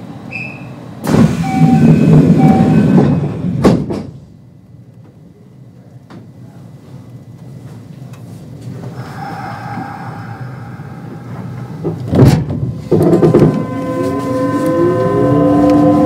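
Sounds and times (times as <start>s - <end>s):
train doors sliding shut: 0.2s - 4.3s, 8.6s - 16.0s
traction inverter whine: 12.9s - 16.0s.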